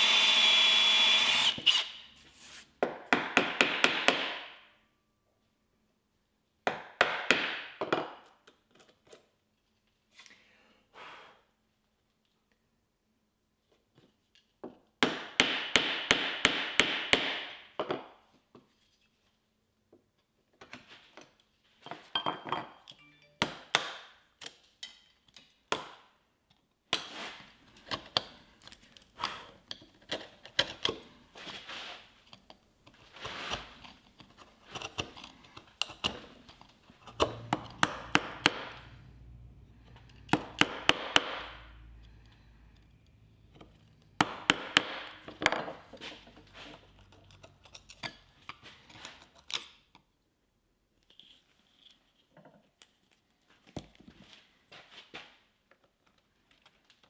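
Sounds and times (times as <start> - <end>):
mallet striking wood chisel: 2.9 - 4.5, 37.0 - 38.8, 40.2 - 41.6, 44.2 - 45.3.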